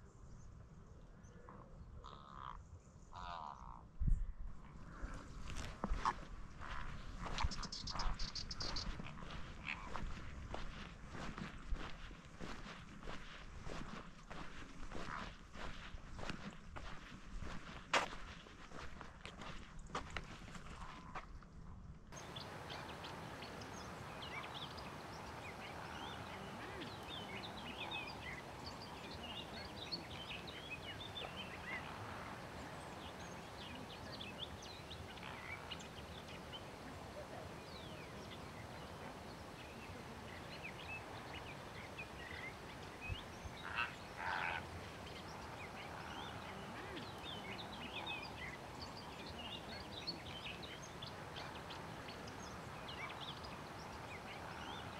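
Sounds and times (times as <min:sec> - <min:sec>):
water birds chattering: 0:05.9 - 0:10.8, 0:22.2 - 0:54.9
bird honking calls: 0:43.6 - 0:44.7.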